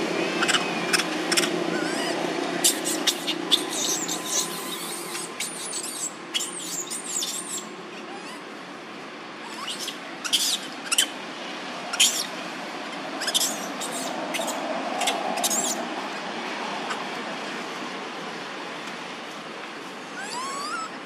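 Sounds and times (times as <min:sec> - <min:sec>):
baby monkey squealing: 0:00.4 - 0:08.5, 0:09.4 - 0:11.2, 0:11.9 - 0:12.4, 0:13.2 - 0:15.8, 0:20.2 - 0:21.0.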